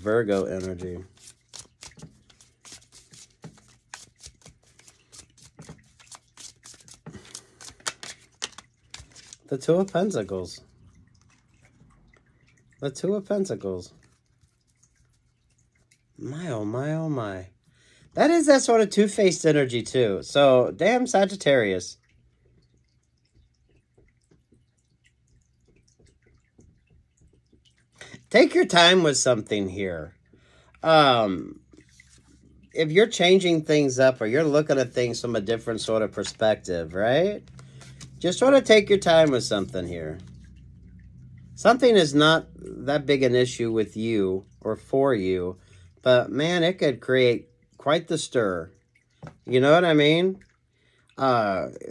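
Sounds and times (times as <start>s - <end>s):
cards being shuffled: 0.0s - 10.2s, 34.4s - 36.6s, 37.4s - 40.4s
low hum: 40.1s - 41.6s.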